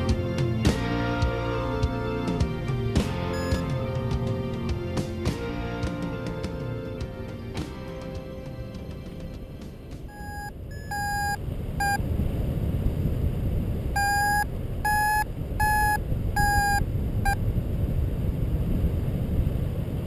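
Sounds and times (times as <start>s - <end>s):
variometer beeping: 3.3s - 3.7s, 10.1s - 12.0s, 14.0s - 17.4s.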